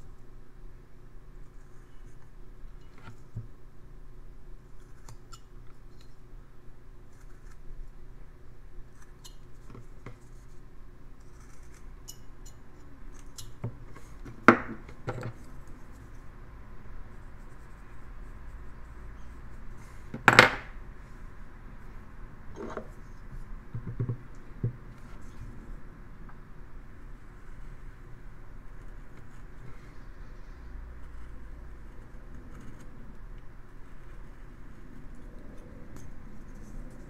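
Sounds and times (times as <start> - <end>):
carving knife scraping wood: 11.2 - 12.1.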